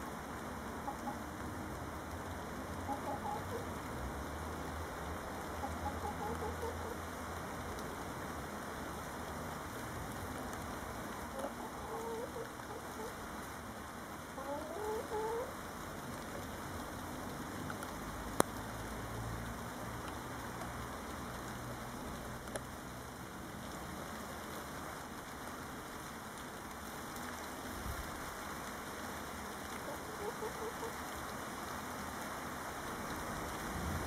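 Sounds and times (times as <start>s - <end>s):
hen clucking softly: 0.8s - 1.3s, 2.8s - 3.7s, 5.6s - 7.0s, 11.3s - 13.2s, 14.4s - 15.5s, 29.8s - 31.0s.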